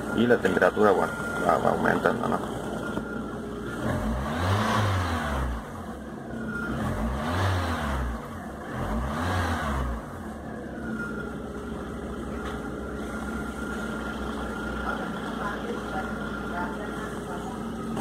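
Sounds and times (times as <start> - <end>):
car engine revving and idling: 0.0 - 18.0.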